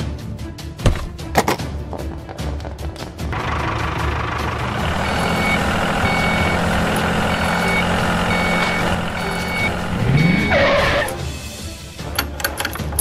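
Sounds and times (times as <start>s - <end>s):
steady motor hum: 3.4s - 11.2s
reversing alarm beeping: 4.8s - 11.2s.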